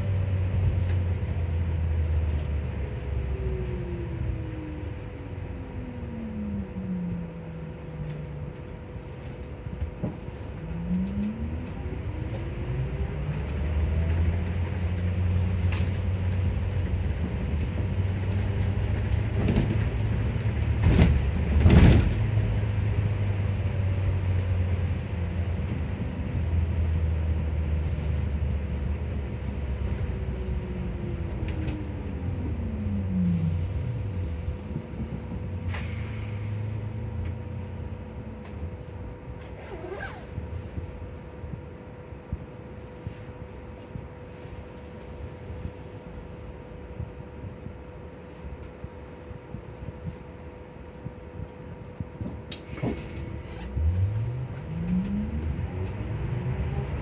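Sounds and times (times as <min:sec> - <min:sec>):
low road rumble: 0:00.0 - 0:57.0
steady hum: 0:40.3 - 0:55.9.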